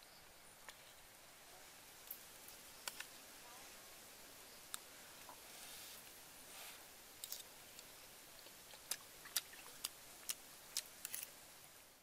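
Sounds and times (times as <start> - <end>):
faint chewing: 7.2 - 11.3.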